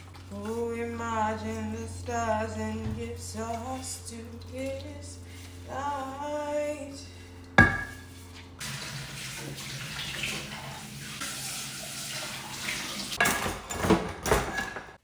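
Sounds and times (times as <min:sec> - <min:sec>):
glass and dishes clinking: 0:07.6 - 0:08.1.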